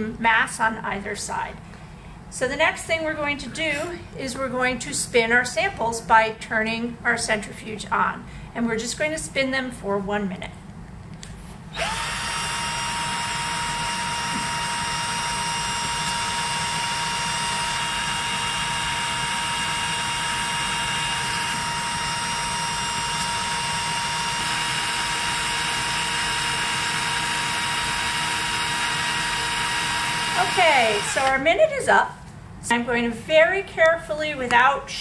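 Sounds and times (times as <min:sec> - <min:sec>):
cordless drill motor whine: 0:11.7 - 0:31.4.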